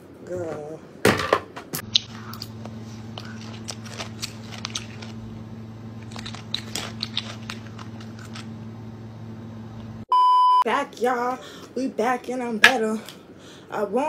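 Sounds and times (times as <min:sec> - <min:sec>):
low hum: 0:01.8 - 0:10.1.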